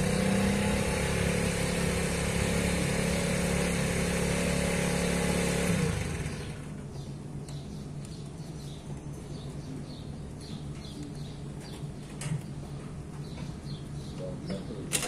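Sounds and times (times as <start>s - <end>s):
low mechanical hum: 0.0s - 15.0s
small birds chirping: 6.3s - 15.0s.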